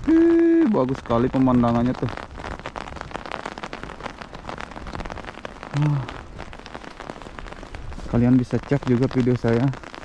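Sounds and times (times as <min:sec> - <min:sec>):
snow pattering: 0:00.0 - 0:10.0
man humming: 0:05.7 - 0:06.2.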